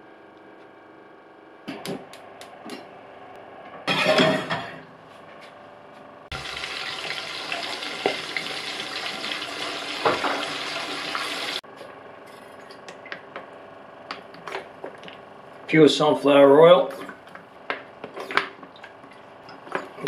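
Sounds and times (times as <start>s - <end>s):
gas burner hissing: 6.3s - 11.6s.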